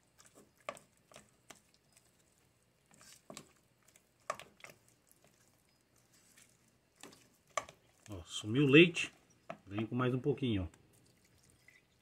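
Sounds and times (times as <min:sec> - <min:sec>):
spatula scraping a pan: 0:00.0 - 0:08.1.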